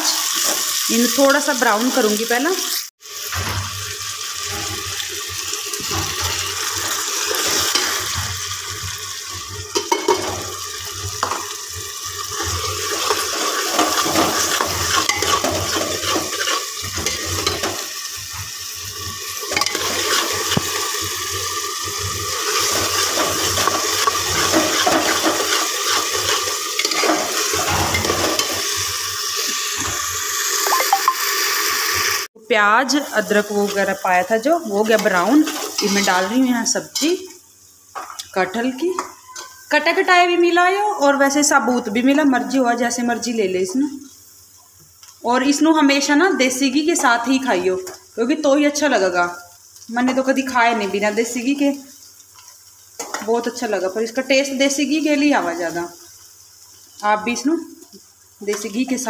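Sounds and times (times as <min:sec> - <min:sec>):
onions sizzling in hot oil: 0:00.0 - 0:59.0
steel spoon stirring and knocking pot: 0:09.7 - 0:10.4, 0:12.3 - 0:17.9, 0:19.5 - 0:20.8, 0:22.5 - 0:28.8.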